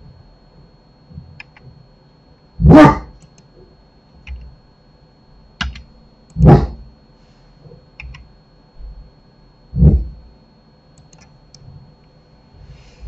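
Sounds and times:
mouse and keyboard clicks: 5.6s - 5.8s, 8.0s - 8.2s.

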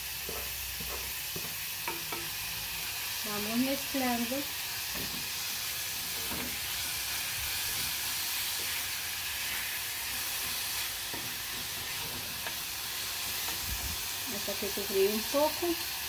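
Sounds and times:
vegetables sizzling in hot oil: 0.0s - 16.0s
wooden spoon scraping a pan: 7.5s - 14.0s.

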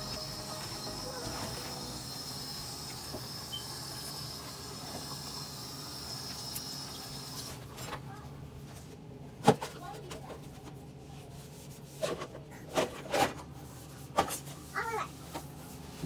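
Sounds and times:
faint high whine: 0.0s - 5.0s.

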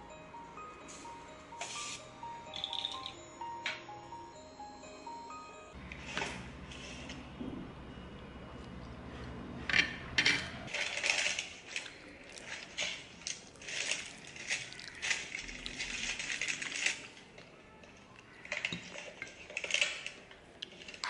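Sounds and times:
background music: 0.0s - 5.8s.

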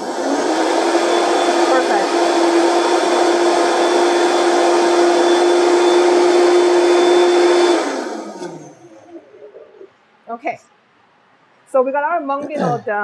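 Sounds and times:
blender running at high speed: 0.0s - 9.0s.

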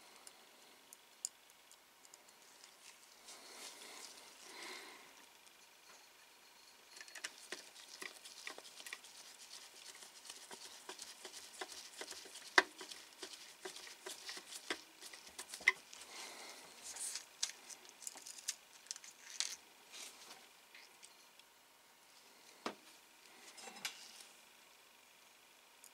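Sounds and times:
light clicking and scratching: 7.0s - 16.0s.

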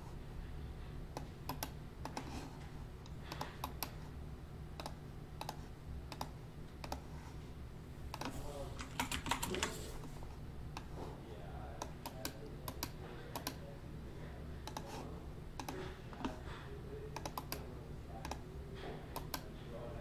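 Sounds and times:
low steady hum: 0.0s - 20.0s
keyboard and mouse clicks: 1.2s - 2.3s, 3.0s - 4.0s, 4.8s - 7.0s, 8.1s - 9.8s, 11.8s - 13.6s, 14.6s - 14.9s, 15.6s - 16.4s, 17.2s - 18.4s, 19.2s - 19.5s.

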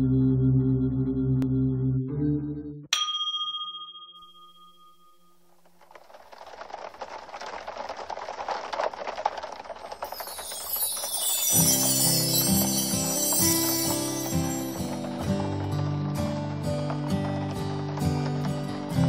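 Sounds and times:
rain pattering on car windshield: 5.5s - 19.0s
bright chime: 10.0s - 15.3s
music: 10.1s - 19.0s.

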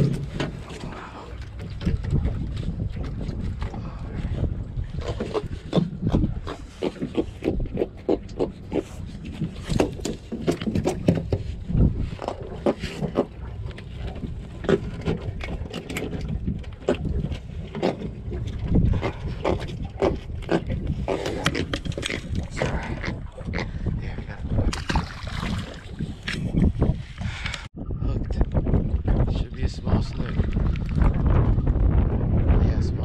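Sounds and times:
fish flopping on boat deck: 0.0s - 23.4s.

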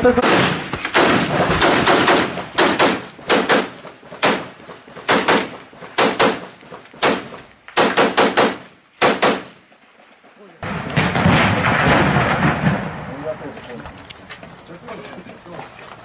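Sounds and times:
automatic gunfire bursts: 0.2s - 9.5s.

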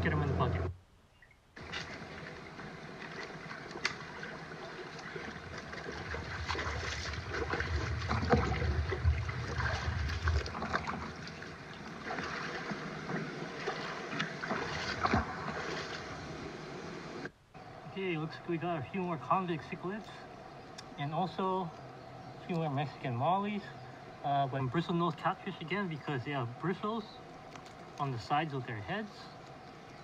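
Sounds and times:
stream water splashing: 1.6s - 17.3s
low rumble: 6.2s - 11.2s.

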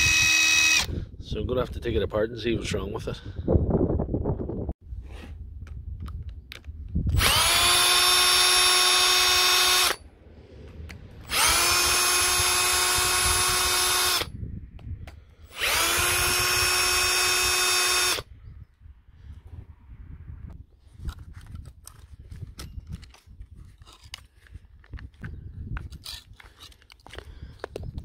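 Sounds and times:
drill motor whining: 0.0s - 1.0s, 7.1s - 10.0s, 11.2s - 14.3s, 15.4s - 18.3s.

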